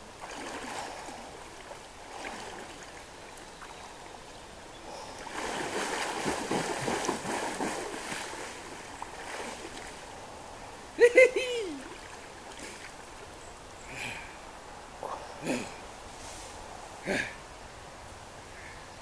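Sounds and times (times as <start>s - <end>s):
river water running: 0.0s - 19.0s
person splashing through water: 0.2s - 1.2s, 2.1s - 2.9s, 5.2s - 10.0s.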